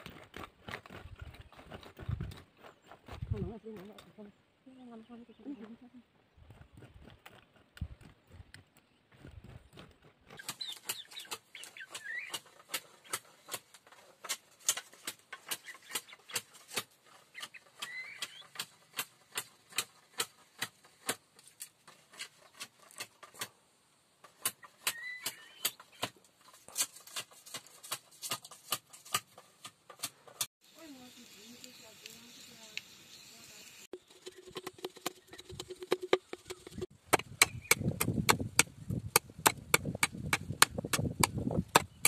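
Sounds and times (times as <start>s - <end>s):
short chirping bird call: 24.6s - 26.0s.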